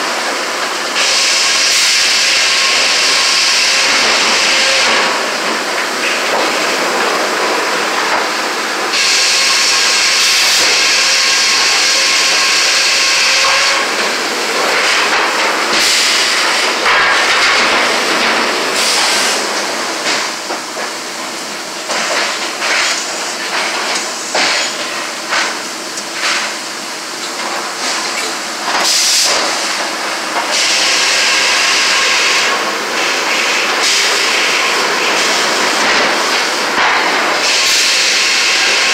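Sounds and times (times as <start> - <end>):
mill machinery clattering: 0.1 - 38.9
circular saw cutting log: 0.9 - 5.4, 8.9 - 19.4, 30.4 - 38.9.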